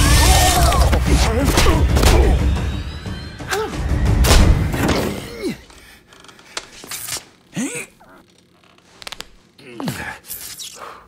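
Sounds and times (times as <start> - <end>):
film score with low rumble: 0.0 - 6.6.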